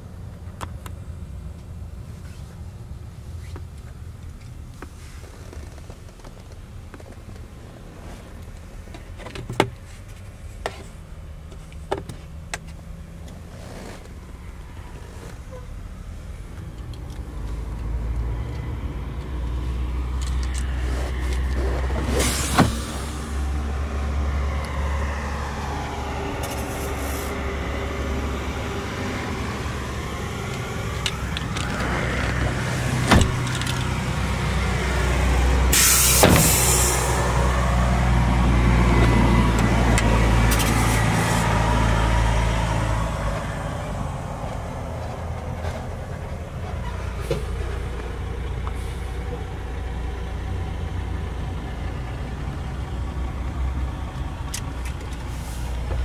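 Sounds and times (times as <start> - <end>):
vehicle engine rumbling: 0.0 - 56.0
short hiss: 35.7 - 37.2.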